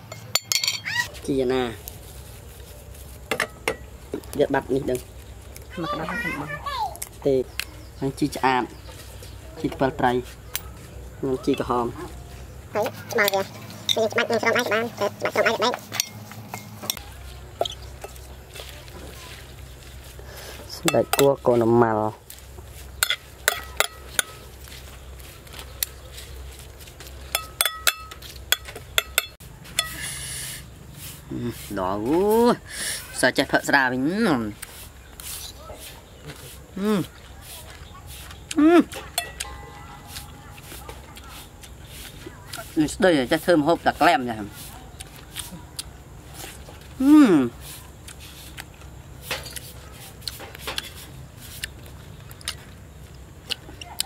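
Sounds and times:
cutlery clinking on ceramic plate: 0:00.0 - 0:01.0, 0:23.0 - 0:24.4, 0:27.3 - 0:30.0, 0:39.0 - 0:39.9
metal spoon scraping a plate: 0:27.3 - 0:30.2
person chewing food: 0:34.5 - 0:42.8, 0:44.6 - 0:47.0, 0:47.6 - 0:54.0.

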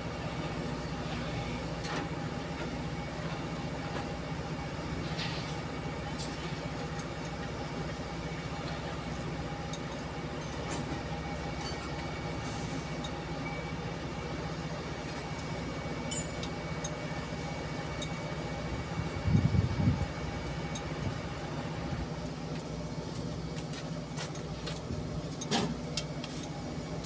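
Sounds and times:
diesel engine idling: 0:00.0 - 0:27.0
small metallic clinks: 0:16.1 - 0:17.0.

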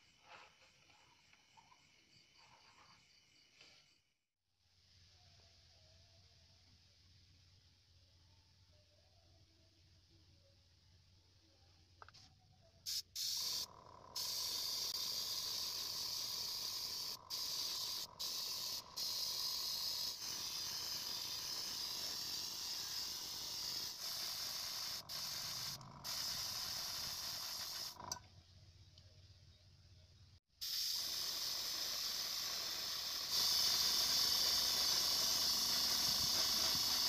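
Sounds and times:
airbrush spraying hiss: 0:12.9 - 0:28.0, 0:30.6 - 0:37.0.

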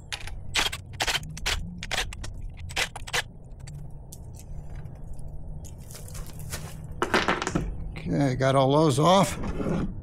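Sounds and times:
metal parts clicking and scraping: 0:00.0 - 0:07.6
low steady hum: 0:00.0 - 0:09.0.

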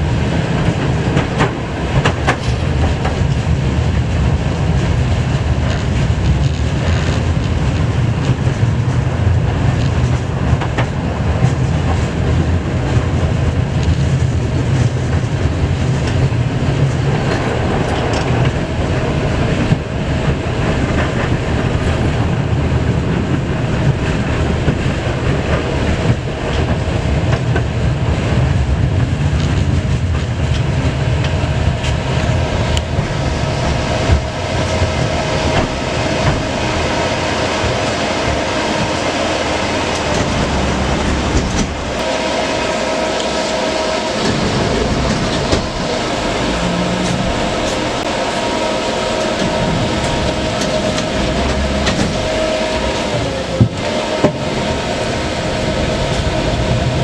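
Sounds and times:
steady whine: 0:00.0 - 0:57.0
steel wheels rumbling on rails: 0:00.0 - 0:57.0.

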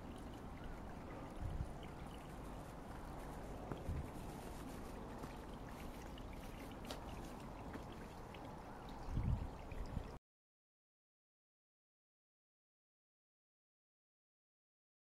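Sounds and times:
outdoor background hiss: 0:00.0 - 0:10.2.

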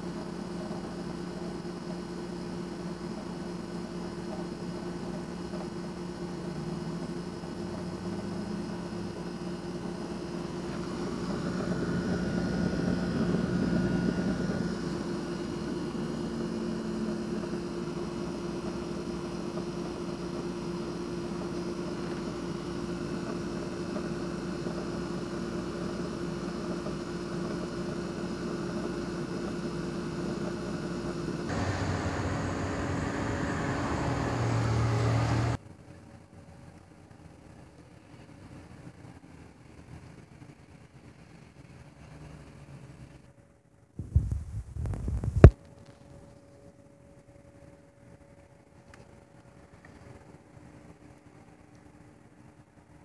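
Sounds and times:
low machine drone: 0:09.8 - 0:17.3, 0:31.5 - 0:35.6.

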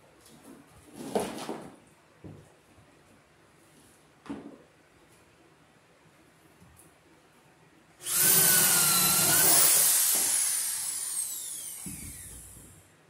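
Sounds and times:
electric drill boring wood: 0:08.0 - 0:12.8.

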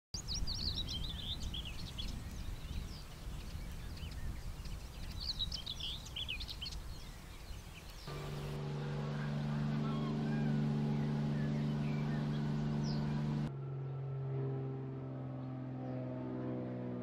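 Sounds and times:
songbirds twittering: 0:00.2 - 0:13.5
steady low rumble: 0:00.2 - 0:13.5.

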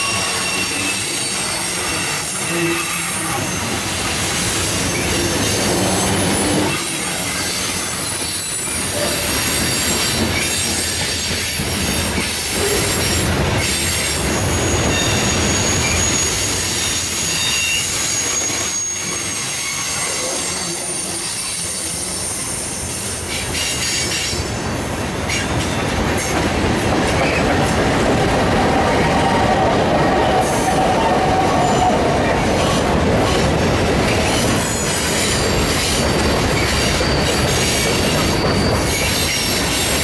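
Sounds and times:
flange squeal: 0:00.0 - 0:11.0, 0:14.4 - 0:24.4, 0:27.1 - 0:40.0
train wheels clacking on rail joints: 0:25.2 - 0:40.0.

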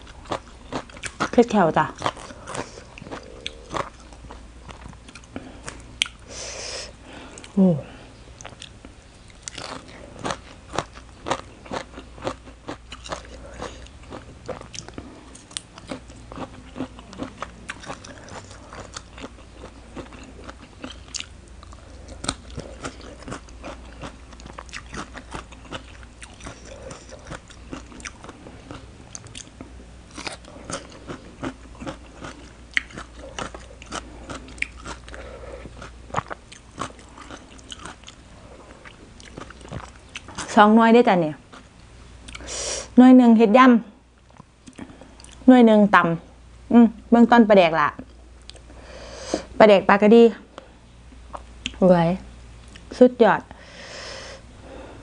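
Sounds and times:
crunching and chewing: 0:00.0 - 0:06.3, 0:08.4 - 0:40.6.

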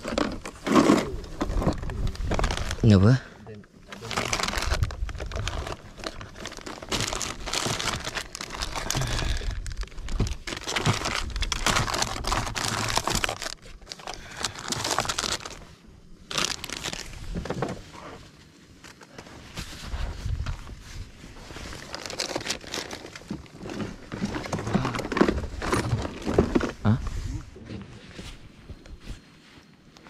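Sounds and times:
plastic bags crinkling: 0:00.0 - 0:03.2, 0:03.9 - 0:17.3, 0:21.6 - 0:26.8.

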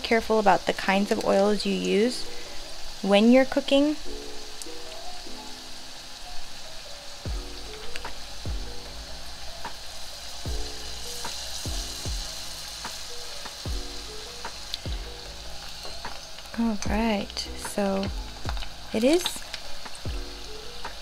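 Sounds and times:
food deep-frying in oil: 0:00.0 - 0:21.0
music with deep bass beat: 0:07.3 - 0:21.0.

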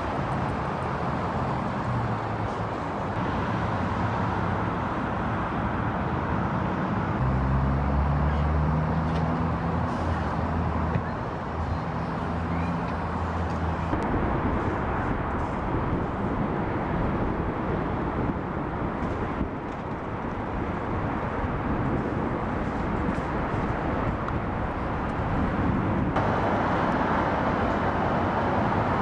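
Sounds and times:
aerial tram cabin rushing noise: 0:13.9 - 0:29.0.

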